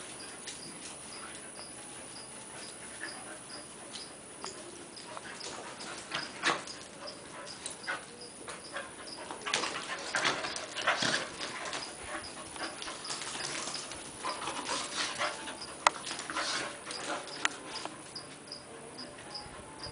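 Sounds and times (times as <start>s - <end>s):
dogs scuffling and huffing: 0.0s - 19.9s
insect chirping: 0.1s - 9.3s, 16.9s - 19.6s.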